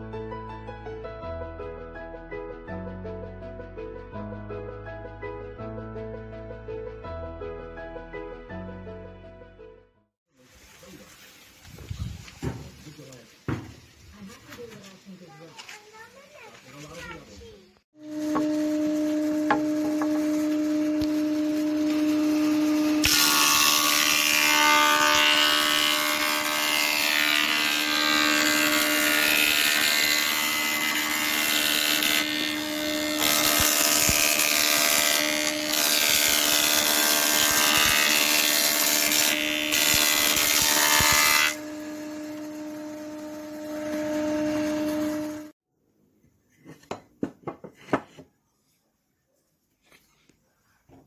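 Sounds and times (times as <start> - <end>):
boards being machined: 18.0 - 45.5
woodworking machine motor hum: 18.0 - 45.5.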